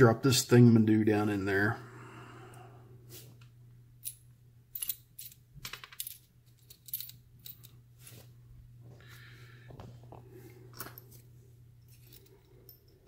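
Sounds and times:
faint steady hum: 0.0s - 13.0s
small metal parts clinking: 4.0s - 7.8s, 10.7s - 13.0s.

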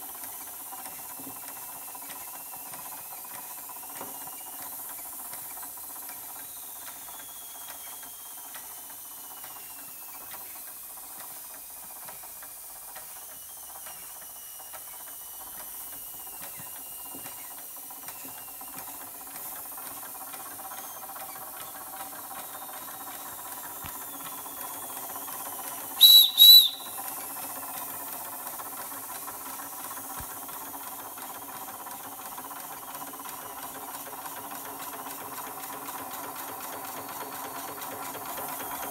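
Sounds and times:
toy steam engine hissing: 0.0s - 38.9s
steam whistle toots: 25.9s - 27.2s.

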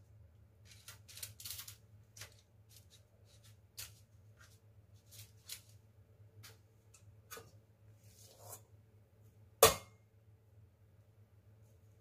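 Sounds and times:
baking paper rustling: 0.6s - 6.7s.

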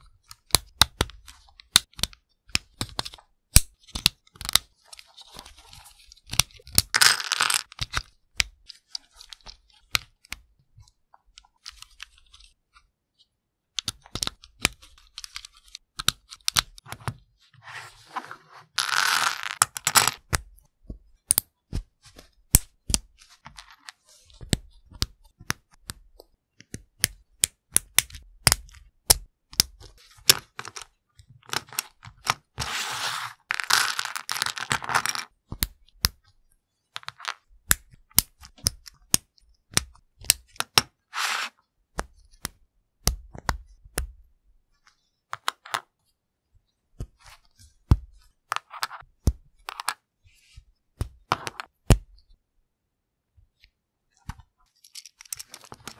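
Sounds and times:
plastic parts clicking and snapping: 53.6s - 55.9s.

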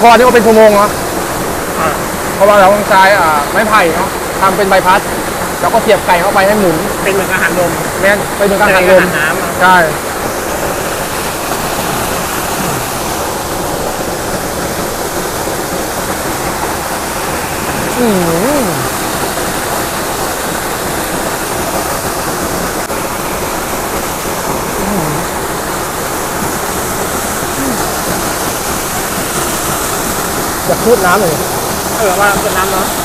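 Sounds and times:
waterfall rushing: 0.0s - 33.0s
short voice: 24.8s - 25.3s.

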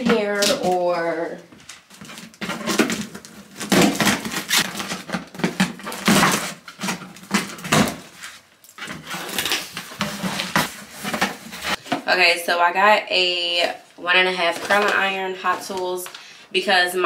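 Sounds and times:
tape and plastic ripping: 1.9s - 11.8s.

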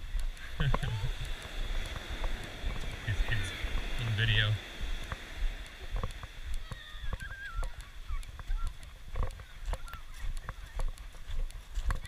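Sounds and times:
footsteps crunching on pebble beach: 0.0s - 12.0s
wavering bird calls: 6.6s - 11.3s.

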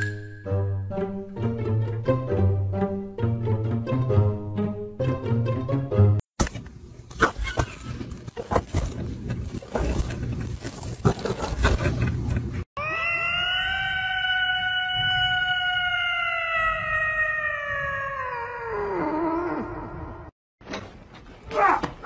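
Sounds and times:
cat meowing: 12.8s - 19.6s.

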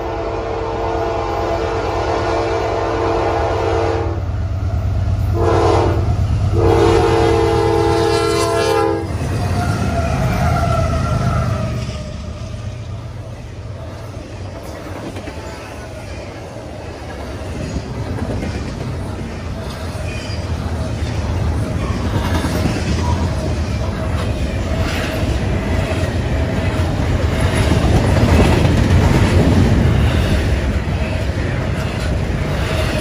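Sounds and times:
locomotive air horn: 0.0s - 4.3s, 5.3s - 9.2s
train wheels clattering on rails: 9.0s - 33.0s.

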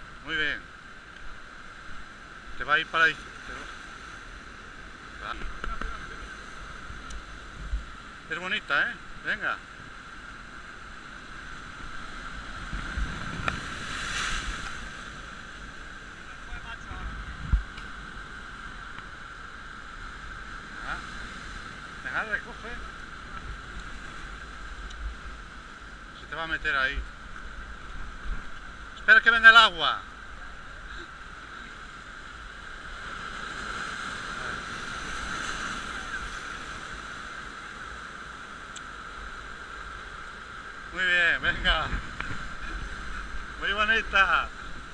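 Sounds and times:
waves breaking over rocks: 0.0s - 44.9s
wind gusting on microphone: 11.1s - 29.1s, 31.8s - 44.9s.

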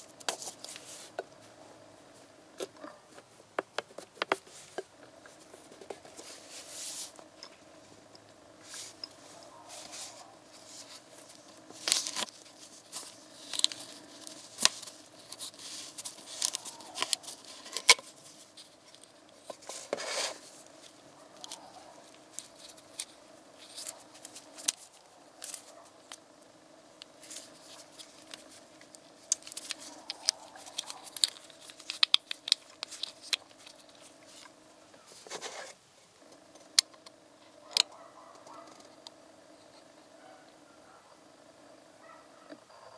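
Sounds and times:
faint steady hum: 0.0s - 42.9s
gloved fingers rubbing plastic: 8.6s - 26.3s, 27.0s - 35.8s.

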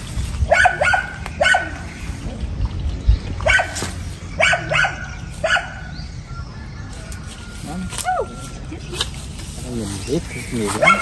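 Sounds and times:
dog barking: 0.5s - 1.8s, 3.4s - 3.8s, 4.4s - 5.8s, 10.8s - 11.0s.

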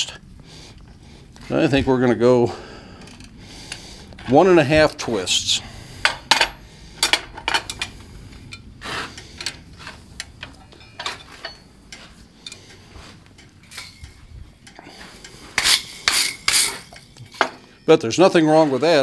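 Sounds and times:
steel tools clinking: 6.0s - 19.0s
wire brush scrubbing iron: 14.6s - 17.0s.

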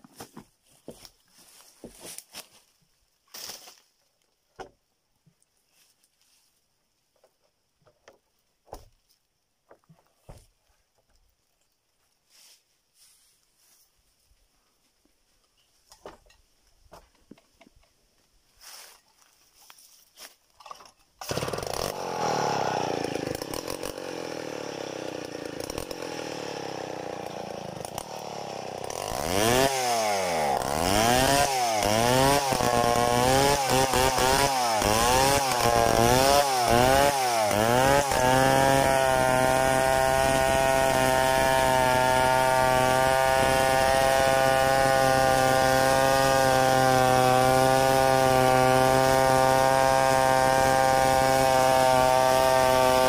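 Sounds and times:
chainsaw revving and cutting log: 21.2s - 53.0s.

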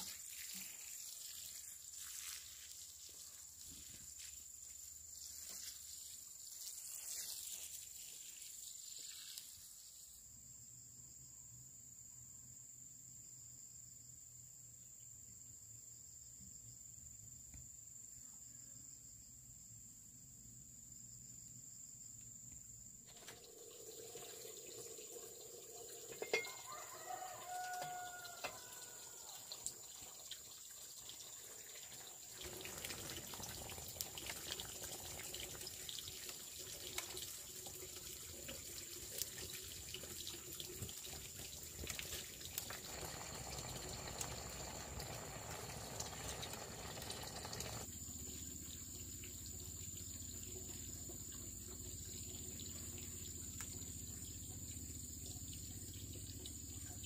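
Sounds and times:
water running and splashing: 0.0s - 9.9s, 23.1s - 57.0s.

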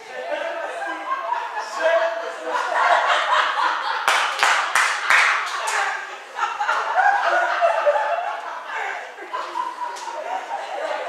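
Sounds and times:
spectators chatting: 0.0s - 11.0s
hand clapping: 4.0s - 5.9s.

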